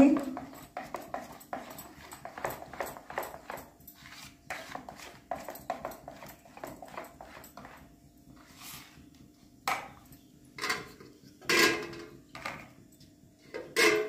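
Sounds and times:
whisk stirring batter in a bowl: 0.0s - 8.6s.

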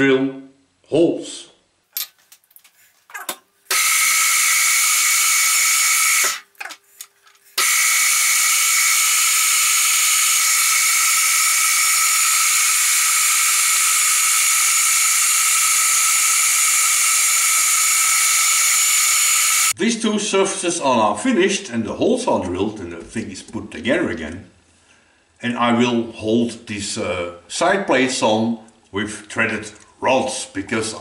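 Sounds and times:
milling machine drilling steel: 3.7s - 6.4s, 7.6s - 19.7s.

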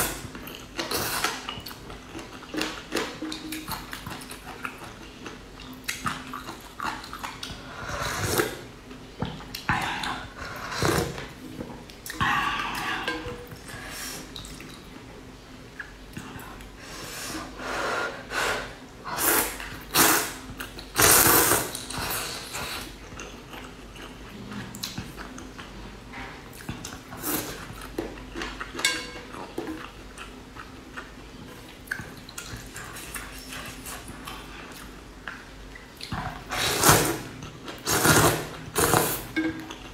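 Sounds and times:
noodles slurped: 36.0s - 39.4s.

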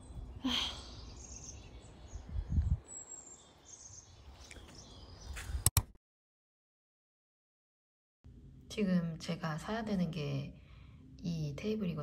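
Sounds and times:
small birds chirping: 0.0s - 5.6s.

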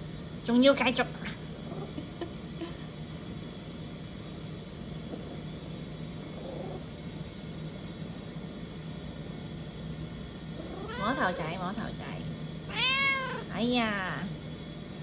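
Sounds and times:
cat purring: 1.4s - 2.3s, 5.0s - 7.3s, 10.4s - 11.8s.

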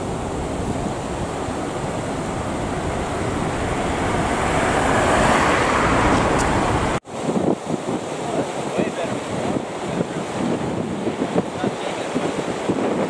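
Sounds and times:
car tyres hissing on wet road: 0.0s - 7.0s
storm wind blowing: 0.0s - 13.0s.

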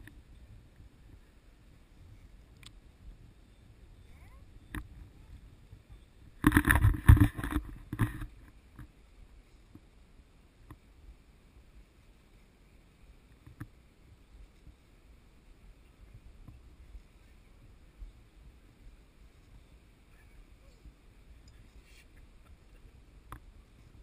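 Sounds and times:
faint clicks: 2.4s - 2.8s, 4.7s - 5.0s
camera handling rubbing and knocking: 6.4s - 8.9s.

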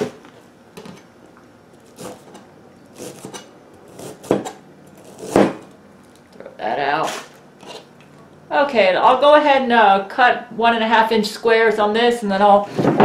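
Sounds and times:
knife chopping cabbage on a board: 1.8s - 5.7s.

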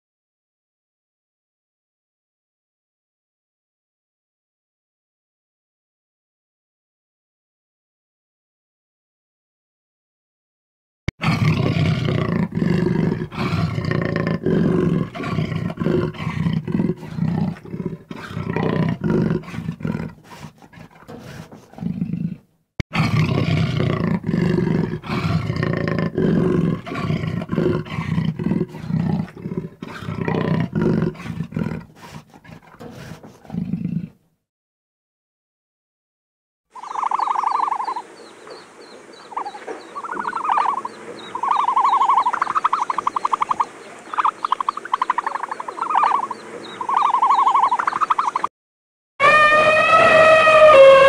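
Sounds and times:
big cat roaring and growling: 11.2s - 34.3s.

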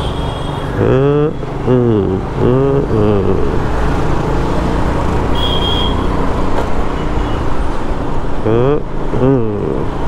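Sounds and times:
road and wind rumble: 0.0s - 10.0s
traffic engines humming: 0.0s - 10.0s
short high-pitched beep: 5.4s - 6.0s.

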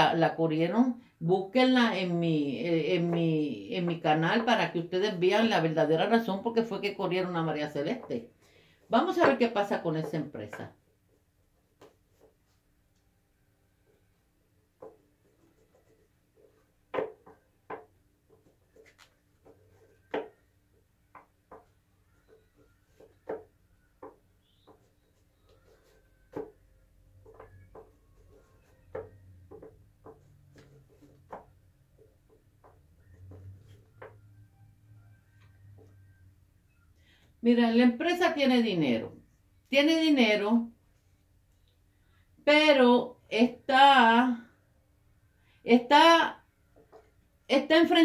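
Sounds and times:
cards being shuffled: 18.4s - 20.4s.

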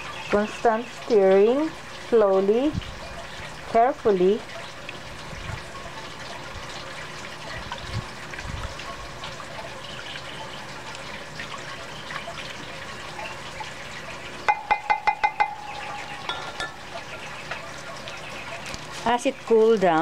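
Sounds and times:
spoon tapping glass cup: 14.5s - 16.8s
spoon stirring liquid in glass: 14.5s - 17.8s.

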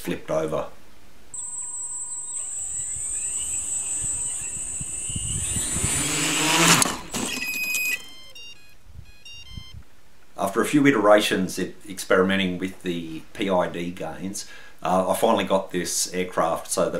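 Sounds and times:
short electronic beeps: 1.4s - 6.2s, 7.0s - 9.8s
electric motors whining: 1.4s - 8.6s
loud rush of tipping over: 5.5s - 8.1s.

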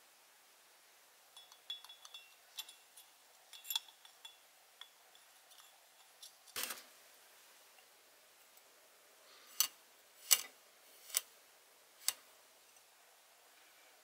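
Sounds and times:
glass clinks: 1.4s - 2.8s.

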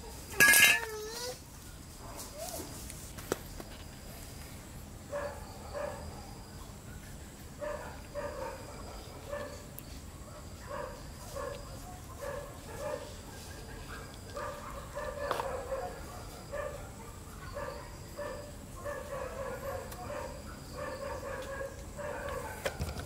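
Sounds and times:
dog barking: 5.1s - 22.9s.

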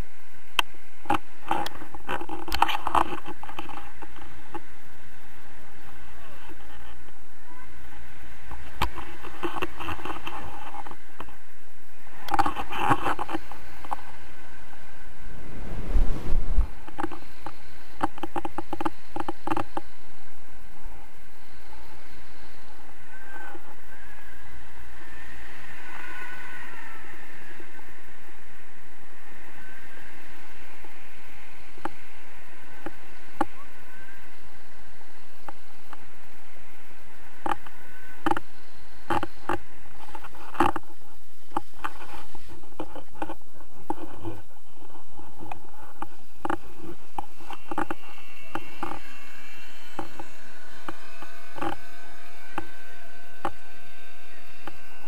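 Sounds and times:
wind rushing over microphone: 7.8s - 19.1s.

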